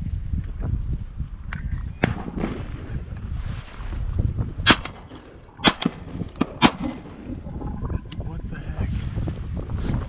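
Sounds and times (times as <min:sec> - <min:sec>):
low wind rumble: 0:00.0 - 0:10.0
shotgun shots with echo: 0:04.7 - 0:07.2.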